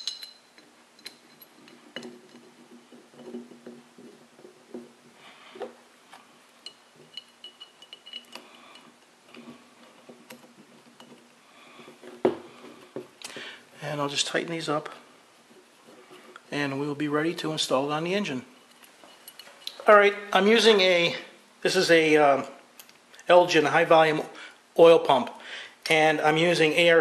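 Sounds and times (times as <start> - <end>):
metallic ring: 0.0 - 2.6, 6.6 - 8.9
metallic clicks and scraping: 6.1 - 13.2.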